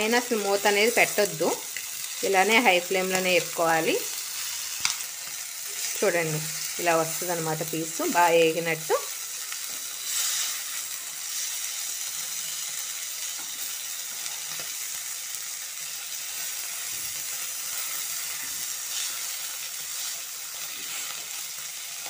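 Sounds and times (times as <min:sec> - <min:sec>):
chicken sizzling in frying pan: 0:00.0 - 0:22.0
metal tongs turning food: 0:03.0 - 0:06.5.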